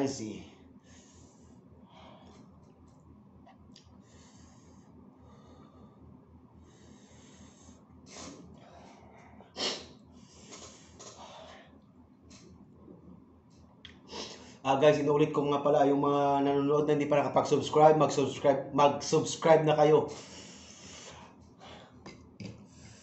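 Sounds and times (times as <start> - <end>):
man breathing hard through mouth: 6.6 - 11.7, 20.1 - 23.0.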